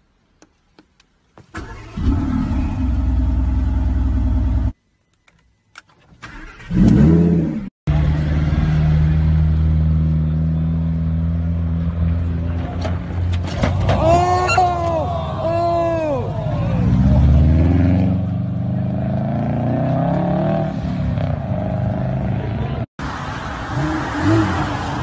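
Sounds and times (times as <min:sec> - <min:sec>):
people shouting: 0:13.8 - 0:17.4.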